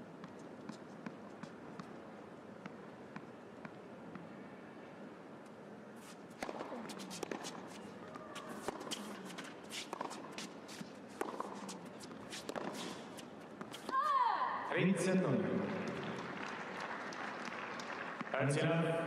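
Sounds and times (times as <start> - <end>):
tennis ball bouncing: 0.2 - 4.3, 6.0 - 14.2
racket striking ball: 6.3 - 14.1
sneakers squeaking on court: 6.3 - 14.2.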